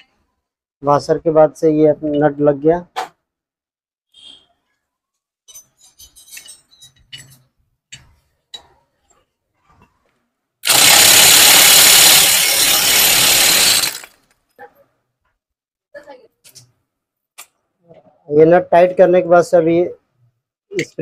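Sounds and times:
clicks of metal parts: 0:05.5 - 0:08.8
electric impact wrench: 0:10.6 - 0:14.2.

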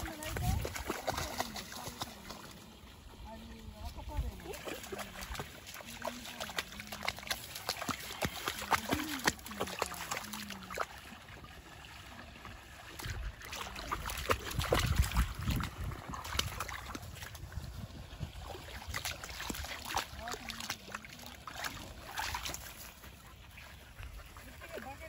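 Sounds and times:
dog splashing in puddle: 0:00.0 - 0:25.0.

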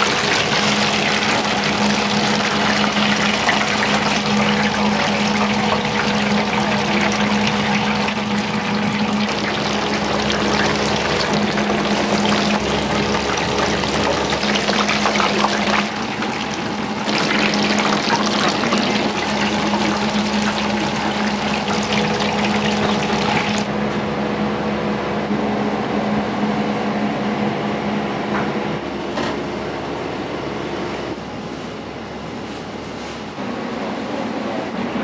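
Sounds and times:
water running from tap into sink: 0:00.0 - 0:23.7.

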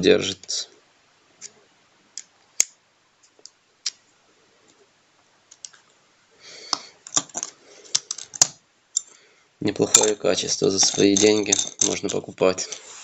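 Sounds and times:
screwdriver bits clicking into holder: 0:10.8 - 0:12.3.

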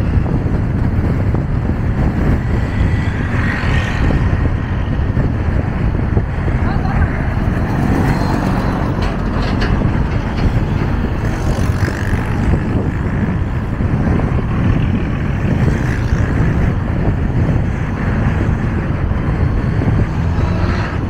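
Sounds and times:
motorcycle rumbling: 0:00.0 - 0:21.0
town traffic noise: 0:00.0 - 0:21.0
wind on microphone: 0:00.0 - 0:21.0.

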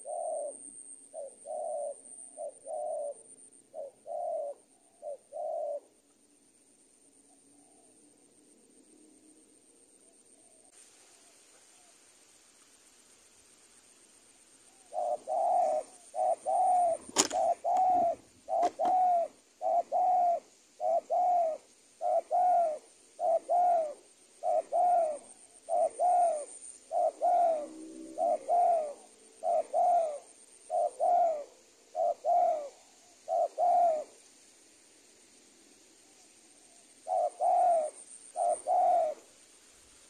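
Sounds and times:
dove cooing: 0:00.0 - 0:06.0, 0:14.8 - 0:34.2, 0:36.6 - 0:39.3
sharp clicks: 0:17.0 - 0:17.9.

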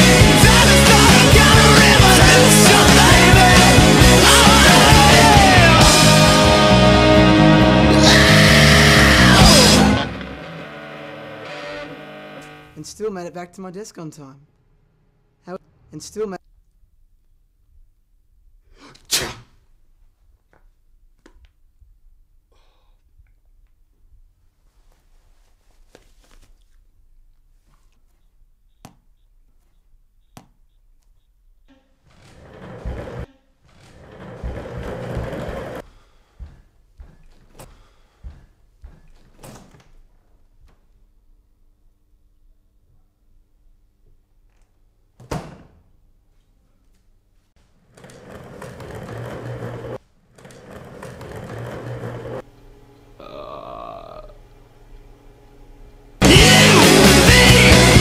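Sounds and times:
clothing rustling: 0:24.2 - 0:28.5
ball tapping in hand: 0:28.2 - 0:31.3
chair casters rolling on tiles: 0:32.1 - 0:35.8, 0:47.8 - 0:52.5.

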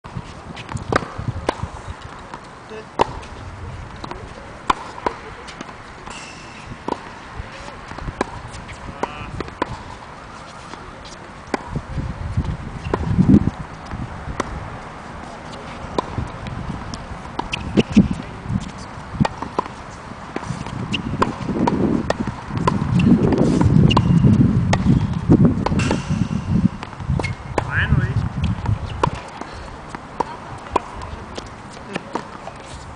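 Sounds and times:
tennis balls hit and bouncing: 0:00.2 - 0:32.9.

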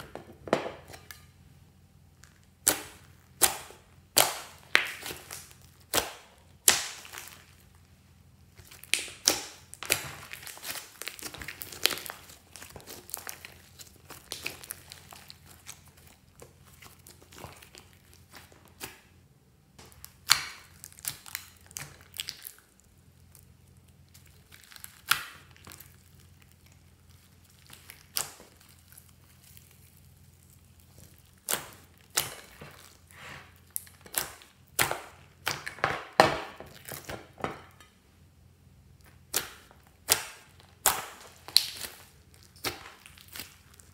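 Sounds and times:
slime squishing and popping: 0:02.1 - 0:07.8, 0:08.5 - 0:19.1, 0:19.8 - 0:37.4, 0:39.0 - 0:43.9.

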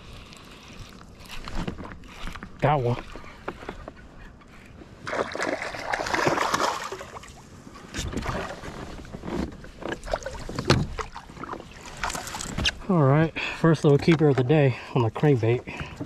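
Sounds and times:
fish splashing at surface: 0:05.1 - 0:07.4.

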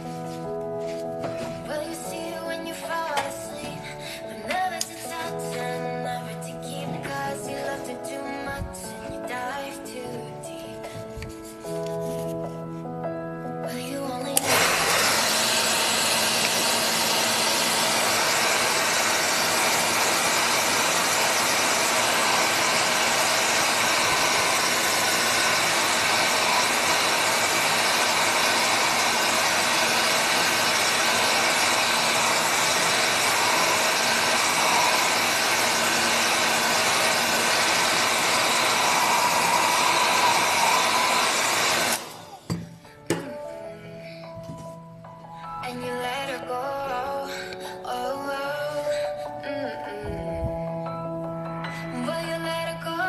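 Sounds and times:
hair dryer blowing air: 0:14.4 - 0:43.3
hair dryer switching on: 0:14.4 - 0:43.3.

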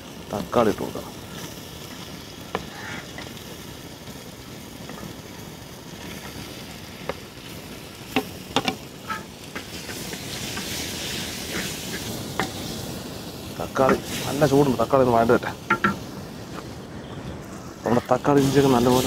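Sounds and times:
onions sizzling in oil: 0:00.0 - 0:19.0
spatula scraping: 0:08.6 - 0:12.8
spatula knocks: 0:15.7 - 0:16.0.

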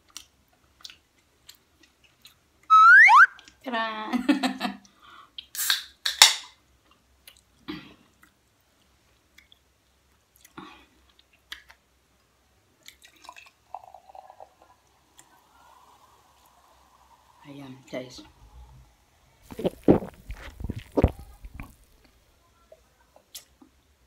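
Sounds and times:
can pull tab hissing pop: 0:05.5 - 0:06.5
soda pouring into glass: 0:13.0 - 0:18.0.

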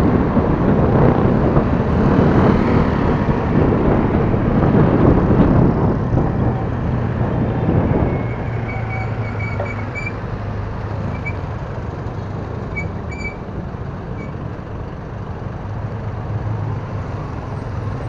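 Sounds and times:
wind rushing over microphone: 0:00.0 - 0:12.7
tyre noise in traffic: 0:00.0 - 0:18.0.

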